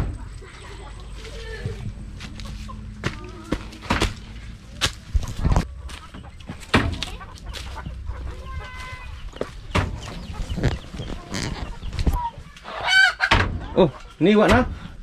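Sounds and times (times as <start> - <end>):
chickens clucking: 0.0 - 15.0
sharp knocks and rustles: 2.2 - 8.0, 9.3 - 12.2.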